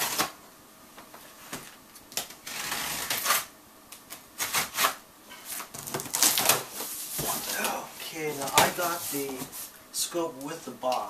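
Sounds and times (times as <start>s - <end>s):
knife slicing packing tape: 0.0s - 0.3s, 2.2s - 3.5s, 4.4s - 5.0s.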